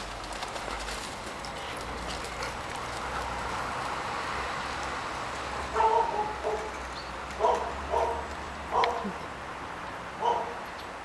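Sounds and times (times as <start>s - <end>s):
dog barking: 5.7s - 6.7s, 7.4s - 9.2s, 10.2s - 10.6s.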